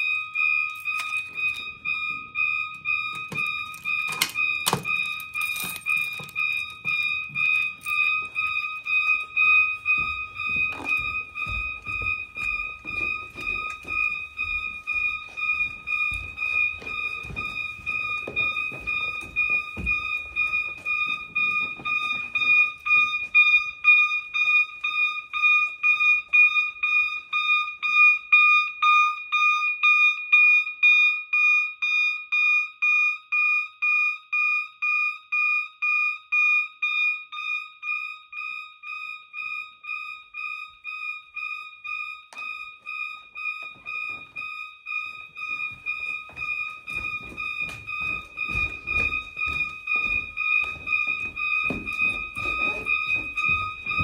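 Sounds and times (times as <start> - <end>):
pulsed fire alarm horn: 0.0 - 54.0.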